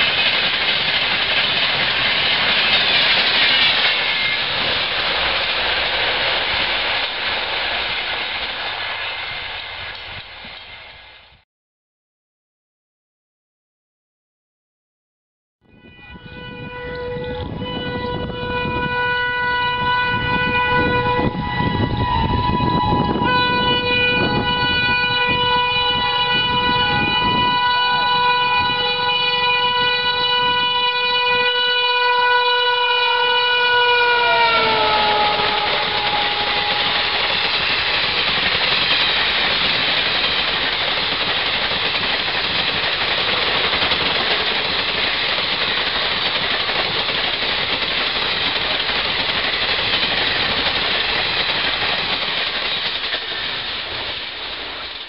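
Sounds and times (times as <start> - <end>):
train coaches rushing past: 0.0 - 11.4, 16.4 - 55.0
train horn blast: 15.7 - 37.4.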